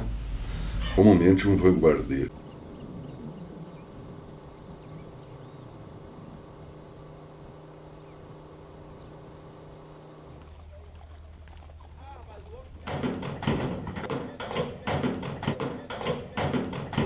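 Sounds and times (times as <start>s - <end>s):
low engine drone: 1.5s - 14.1s.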